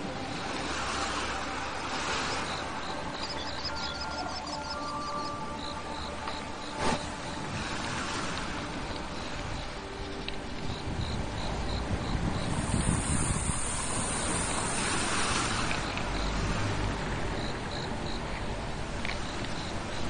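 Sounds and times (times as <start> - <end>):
faint high chirping: 2.3 - 6.8
wind on microphone: 6.2 - 20.0.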